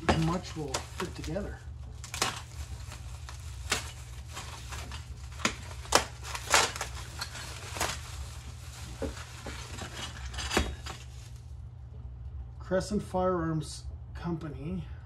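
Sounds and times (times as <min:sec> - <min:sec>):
plastic bag crinkling: 0:00.0 - 0:11.4
low hum: 0:00.0 - 0:15.0.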